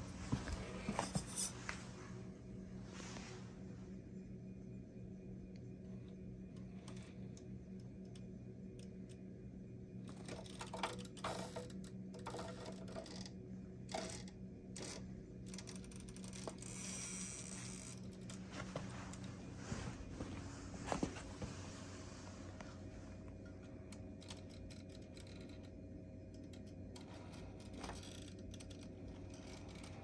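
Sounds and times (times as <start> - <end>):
toy car motor hum: 10.1 - 18.4, 26.4 - 30.0.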